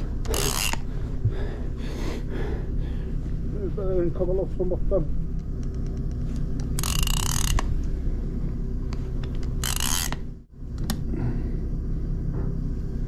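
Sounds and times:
steady low rumble: 0:00.0 - 0:13.0
reel gear clicks: 0:00.2 - 0:00.8, 0:05.4 - 0:07.7, 0:09.2 - 0:10.2
fishing reel cranking: 0:00.3 - 0:00.9, 0:06.7 - 0:07.8, 0:09.5 - 0:10.3.

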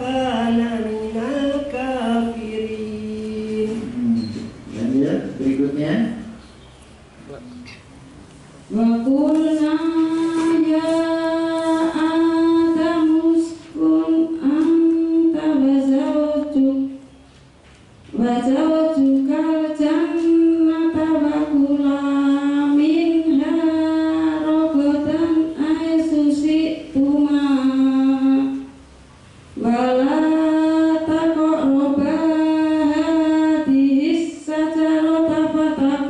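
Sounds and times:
woman chanting melodically: 0:00.0 - 0:04.5, 0:08.7 - 0:17.1, 0:18.1 - 0:28.8, 0:29.6 - 0:36.0.

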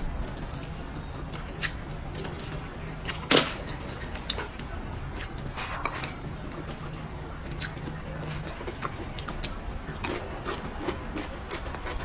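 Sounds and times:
chewing: 0:00.0 - 0:12.0.

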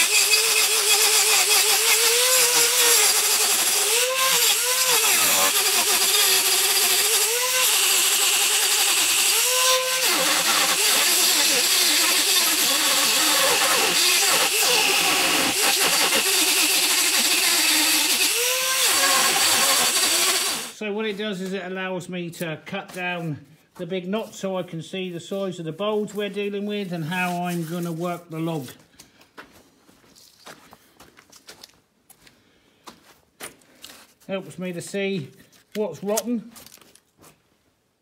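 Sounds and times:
angle grinder cutting wood: 0:00.0 - 0:20.8.

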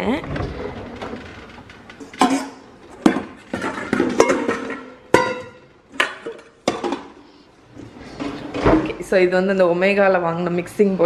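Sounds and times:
metal bowls clanking: 0:01.8 - 0:07.2.

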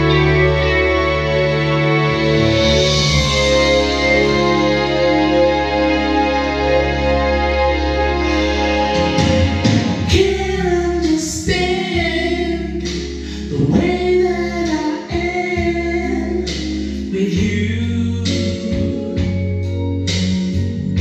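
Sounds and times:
backing music with keyboard chords: 0:00.0 - 0:21.0
man singing into microphone: 0:10.1 - 0:19.2.

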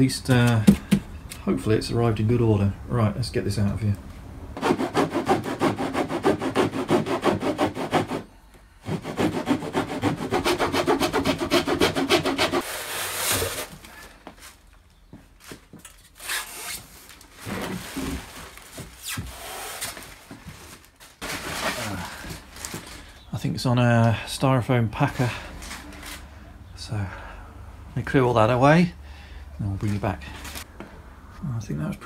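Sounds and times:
blade sawing through cardboard: 0:04.6 - 0:13.8
rustling: 0:12.5 - 0:23.2
handling plastic packaging wrap: 0:16.1 - 0:23.2.

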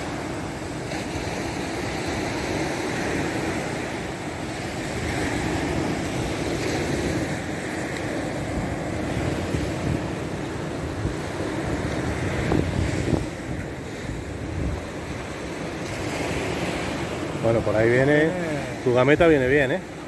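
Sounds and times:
wind buffeting microphone: 0:00.0 - 0:17.8
surf washing onto beach: 0:00.0 - 0:20.0.

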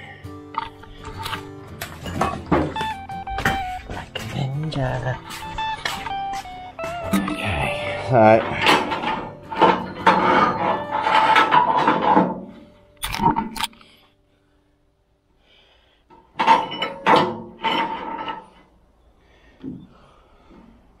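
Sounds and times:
wire cable scraping against metal: 0:07.1 - 0:13.7, 0:16.3 - 0:18.8.

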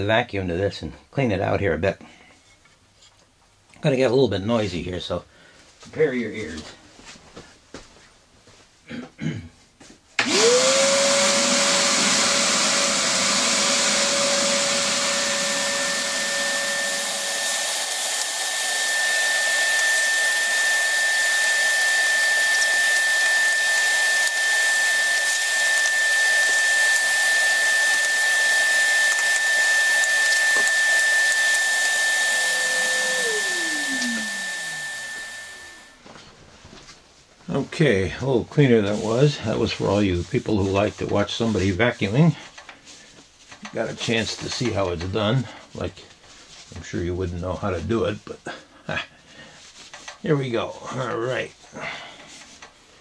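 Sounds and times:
vacuum cleaner running: 0:10.2 - 0:36.0
vacuum motor winding down: 0:10.2 - 0:36.0.

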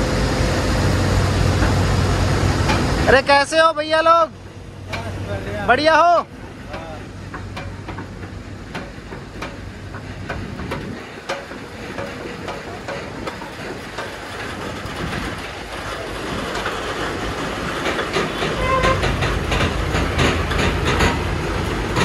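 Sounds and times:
sharp clicks and clanks: 0:06.7 - 0:22.0.

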